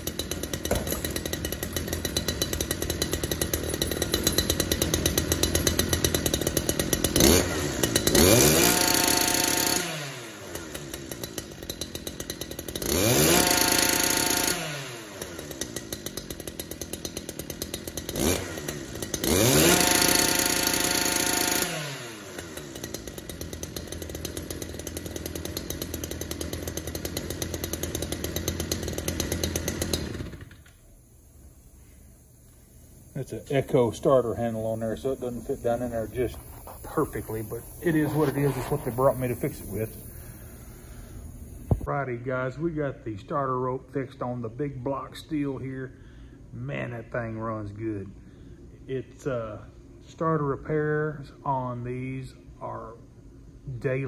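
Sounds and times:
trimmer engine idling and revving: 0:00.0 - 0:31.0, 0:32.4 - 0:41.9.

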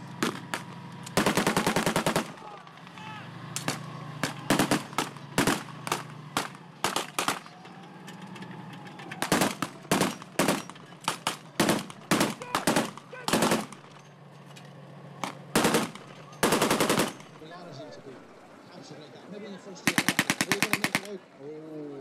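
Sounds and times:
blank gunfire: 0:00.2 - 0:02.6, 0:03.6 - 0:07.6, 0:09.2 - 0:13.8, 0:15.6 - 0:17.4, 0:19.9 - 0:21.2.

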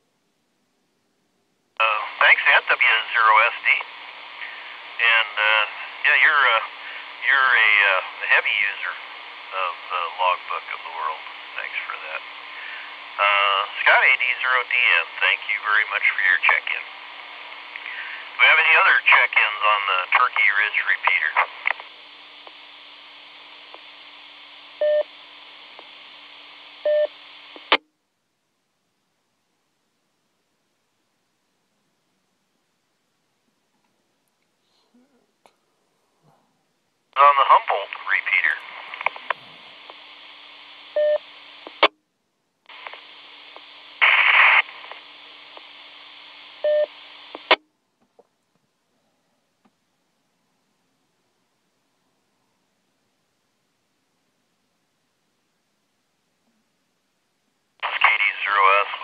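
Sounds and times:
radio hiss with low hum: 0:01.7 - 0:27.8, 0:37.1 - 0:41.9, 0:42.6 - 0:47.6, 0:57.7 - 0:59.0
radio squelch crackle: 0:01.8 - 0:27.8, 0:37.1 - 0:41.9, 0:42.6 - 0:47.6, 0:57.8 - 0:59.0
radio beep: 0:17.8 - 0:21.8, 0:24.8 - 0:25.1, 0:26.8 - 0:27.7, 0:37.2 - 0:40.0, 0:40.9 - 0:41.9, 0:46.6 - 0:47.6, 0:57.8 - 0:59.0.

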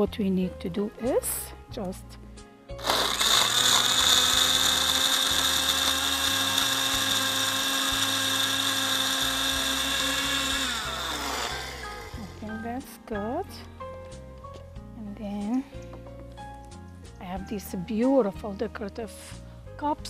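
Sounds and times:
electric blender motor whining: 0:02.8 - 0:12.6.

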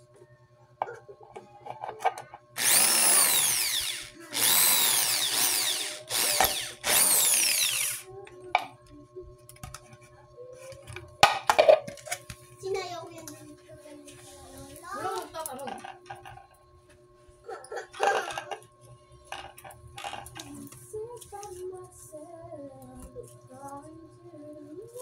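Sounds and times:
electric drill boring plastic: 0:02.6 - 0:08.1.

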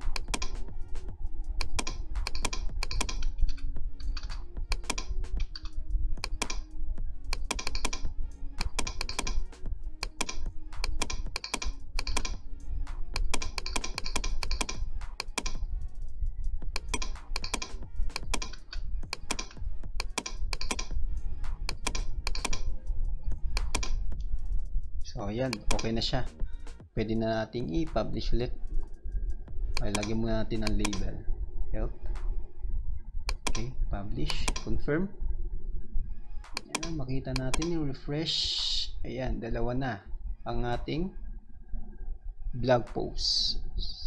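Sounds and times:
keyboard and mouse clicking: 0:00.0 - 0:15.7, 0:16.7 - 0:22.8, 0:23.5 - 0:24.3, 0:25.4 - 0:26.8, 0:29.7 - 0:31.2, 0:33.3 - 0:33.7, 0:34.3 - 0:34.8, 0:36.4 - 0:37.8
background music with low bass: 0:00.0 - 0:44.0.

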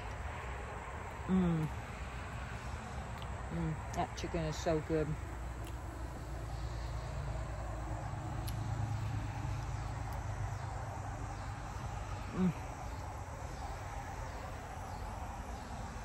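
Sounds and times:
insects chirring: 0:00.0 - 0:16.0
person humming: 0:01.3 - 0:01.8, 0:12.3 - 0:12.8.

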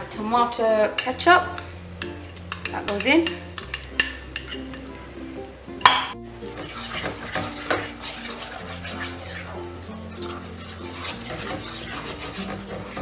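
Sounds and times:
light sizzle: 0:00.0 - 0:13.0
soft background music: 0:00.0 - 0:13.0
wooden spoon scraping frying pan: 0:06.4 - 0:13.0.

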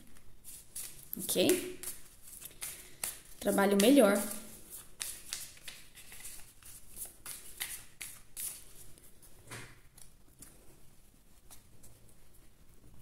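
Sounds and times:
cards being shuffled: 0:00.0 - 0:08.9.

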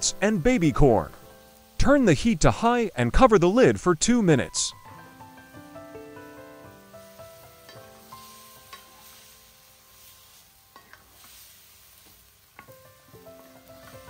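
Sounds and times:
food sizzling in a wok: 0:00.0 - 0:14.0.

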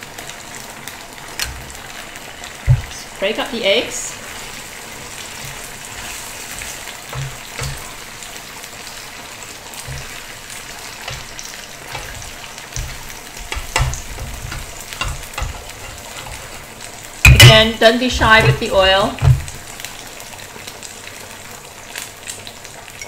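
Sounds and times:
batter sizzling in oil: 0:00.0 - 0:23.0
spatula scraping and tapping pan: 0:05.1 - 0:08.3, 0:09.8 - 0:19.6.

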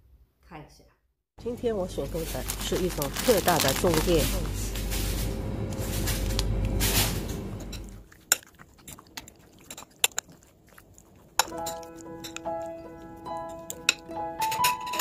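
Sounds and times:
low hum: 0:01.4 - 0:08.2
plastic wrapper rustling: 0:01.9 - 0:07.2
fork tapping ceramic bowl: 0:11.4 - 0:12.7, 0:13.3 - 0:14.7
music: 0:11.6 - 0:15.0.

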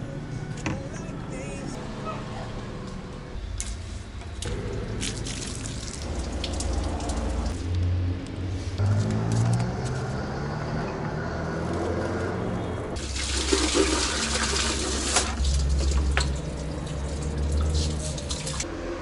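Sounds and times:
hose water splashing into bucket: 0:04.4 - 0:07.6, 0:13.0 - 0:18.6.

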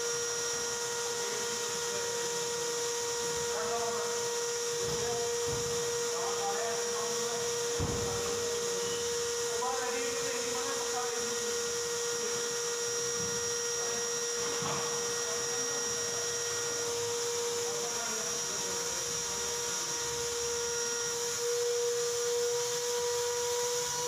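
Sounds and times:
faint high whine: 0:00.0 - 0:24.0
machine whine: 0:00.0 - 0:24.0.

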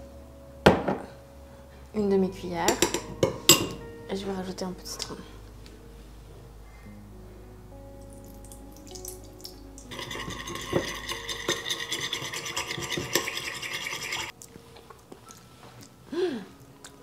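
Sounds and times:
utensil scraping dish: 0:09.9 - 0:14.3.

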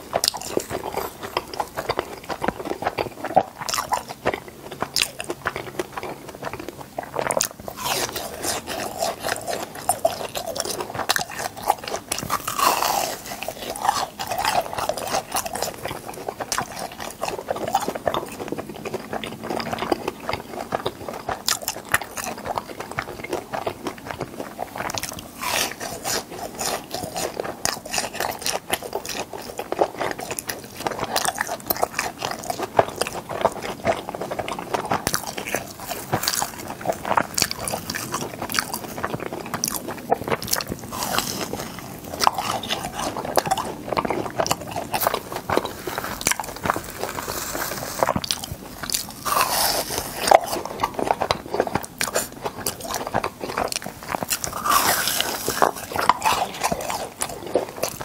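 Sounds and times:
crunchy chewing: 0:00.0 - 0:58.0
wet mouth sounds: 0:00.0 - 0:58.0.

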